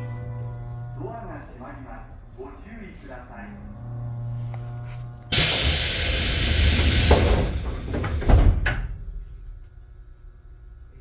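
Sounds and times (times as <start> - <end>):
compressed air hissing: 5.3 - 8.6.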